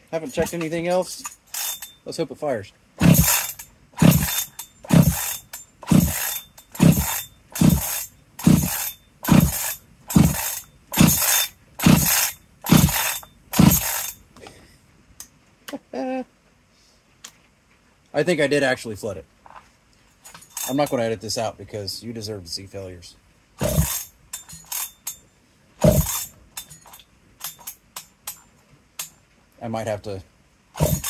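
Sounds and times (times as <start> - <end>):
chainsaw starter cord pulls: 0.2 - 1.9, 3.0 - 14.2, 20.2 - 21.0, 23.6 - 24.9, 25.8 - 28.4, 30.8 - 31.0
engine cranking without firing: 0.2 - 2.0, 3.0 - 14.2, 23.6 - 24.9, 25.8 - 27.8, 30.8 - 31.0.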